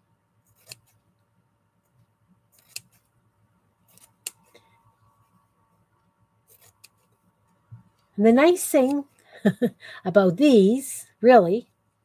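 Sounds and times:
scissors snipping: 0.5s - 1.0s, 2.5s - 3.0s, 3.9s - 4.5s, 6.5s - 7.1s.

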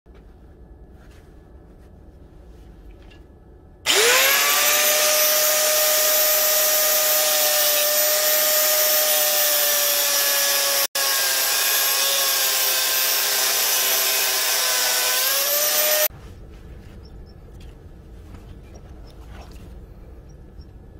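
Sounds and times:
angle grinder cutting steel: 3.9s - 16.1s.

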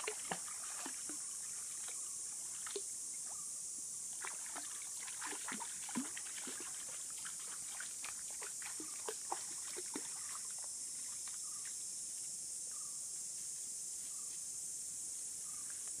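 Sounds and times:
dog splashing through shallow water: 0.0s - 2.0s, 4.2s - 11.2s
high insect drone: 0.0s - 16.0s.

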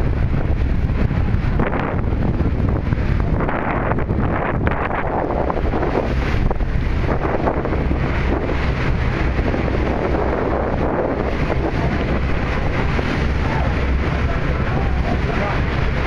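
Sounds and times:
boat engine: 0.0s - 16.0s
water rushing along hull: 0.0s - 16.0s
wind buffeting microphone: 0.0s - 16.0s.

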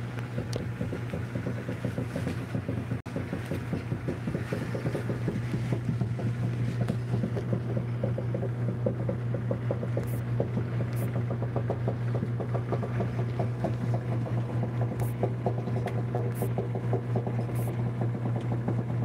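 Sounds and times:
microwave oven humming: 5.2s - 19.0s.

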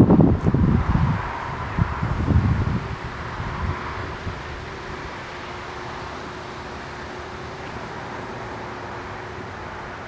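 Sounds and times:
wind buffeting microphone: 0.0s - 5.6s.

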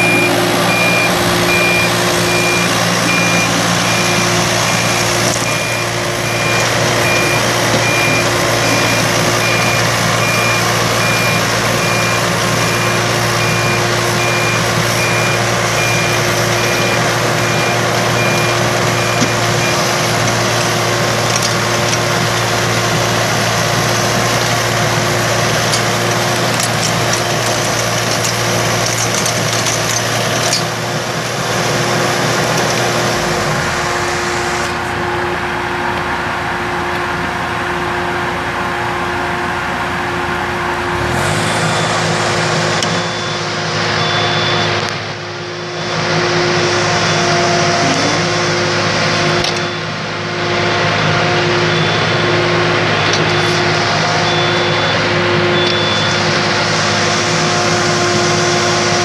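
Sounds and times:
travel alarm beeping: 0.0s - 20.6s, 41.7s - 48.3s, 49.3s - 50.0s, 51.2s - 56.5s
diesel engine running: 0.0s - 59.0s.

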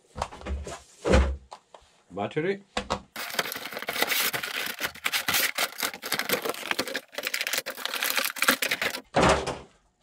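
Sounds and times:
plastic packaging crackling: 3.2s - 9.1s
thump: 9.1s - 9.6s.

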